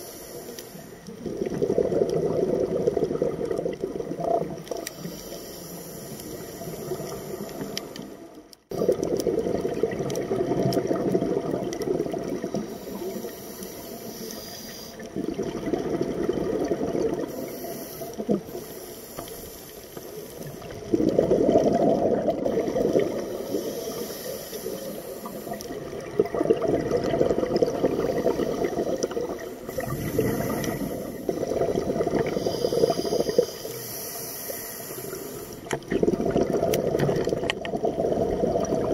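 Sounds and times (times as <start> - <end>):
exhaled bubbles rushing: 1.0 - 4.9, 8.7 - 12.8, 15.0 - 17.5, 20.6 - 23.7, 24.7 - 33.5, 35.6 - 38.9
diver breathing through regulator: 4.8 - 8.2, 12.5 - 15.1, 17.2 - 20.7, 22.5 - 25.8, 27.9 - 35.7.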